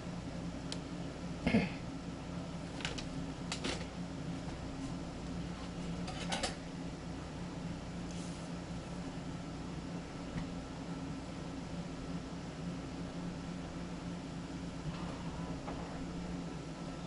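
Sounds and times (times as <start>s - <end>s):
low hum: 6.7s - 17.0s.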